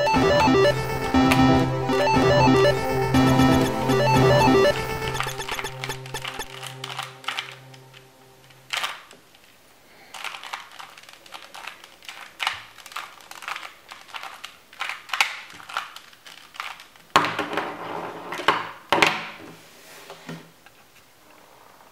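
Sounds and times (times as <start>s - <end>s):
plastic puzzle cube clicking: 5.8s - 9.5s, 10.1s - 17.2s.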